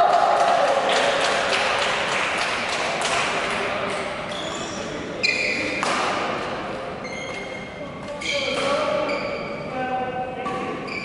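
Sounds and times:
shoes squeaking on floor: 4.3 - 5.9, 6.9 - 9.8, 10.8 - 11.0
rackets hitting shuttlecock: 5.7 - 6.6, 8.5 - 9.0.

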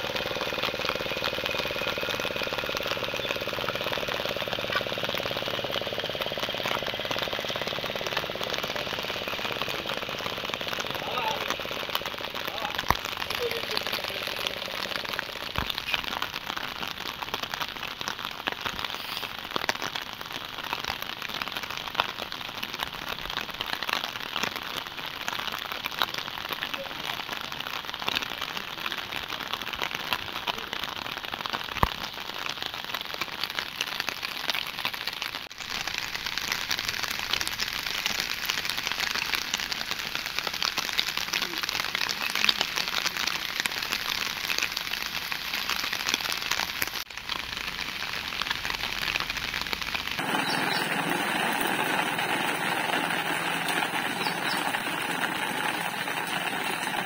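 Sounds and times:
rain pattering: 0.0 - 57.0.

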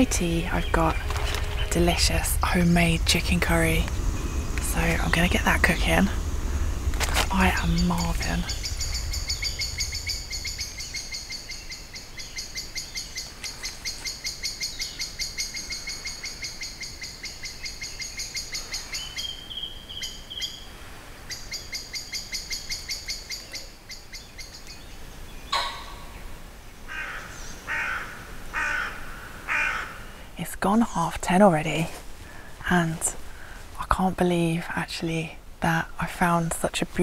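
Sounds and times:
harsh low bird calls: 0.0 - 20.7, 21.3 - 30.1.

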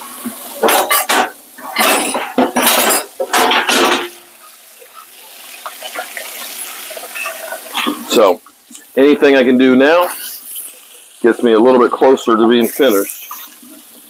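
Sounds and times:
dishes and cutlery clattering: 0.6 - 4.3.

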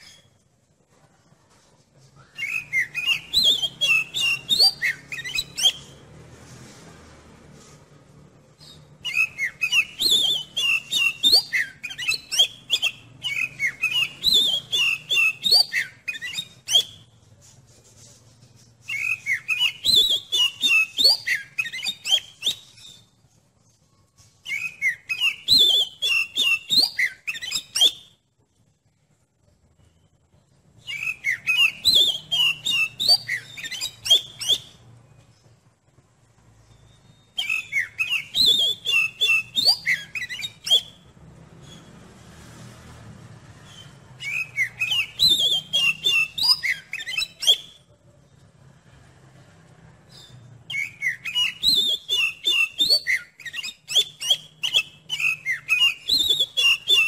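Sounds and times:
songbird whistling: 2.1 - 6.1, 8.5 - 17.2, 18.8 - 23.2, 24.2 - 28.2, 29.8 - 35.5, 36.6 - 42.1, 43.5 - 47.9, 50.1 - 57.0.

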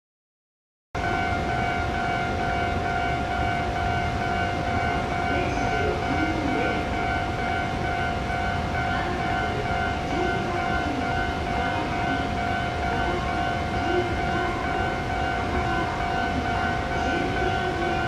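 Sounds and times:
train equipment high whine: 1.0 - 18.0.

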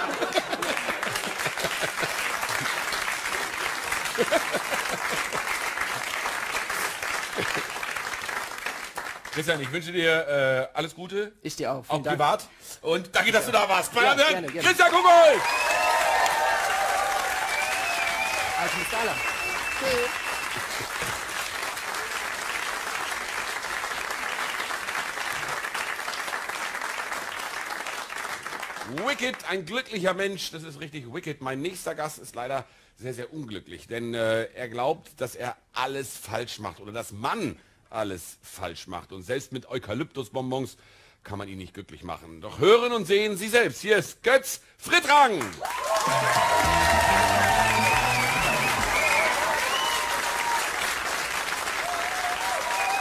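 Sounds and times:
audience laughter: 0.0 - 2.6, 4.1 - 5.5, 46.0 - 49.2
audience applauding: 0.0 - 9.9, 13.4 - 29.4, 45.4 - 53.0.

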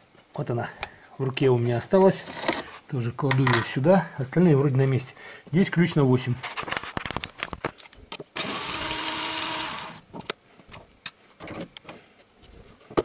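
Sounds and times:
cordless drill spinning: 8.4 - 10.1.

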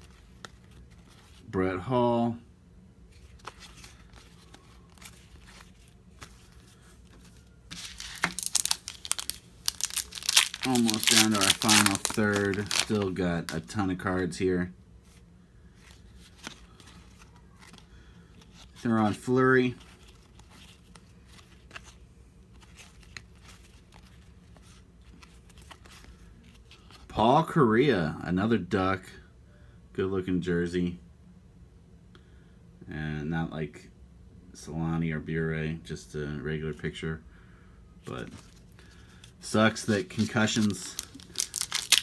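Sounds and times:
trading cards rustling: 0.0 - 1.5, 3.1 - 13.8, 15.8 - 27.0, 38.0 - 42.0
foil pack crinkling and tearing: 7.7 - 13.7, 39.9 - 42.0.

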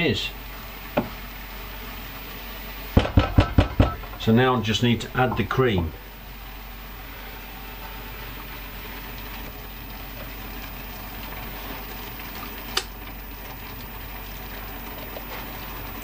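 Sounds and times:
cream sizzling in a pan: 6.0 - 16.0.

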